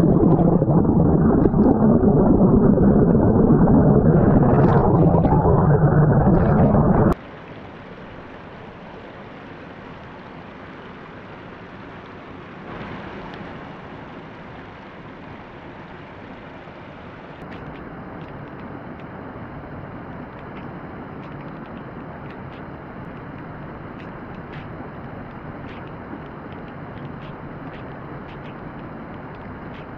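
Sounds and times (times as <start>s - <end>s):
water spilling over weir: 0.0s - 9.7s
muffled underwater water rush: 0.0s - 29.9s.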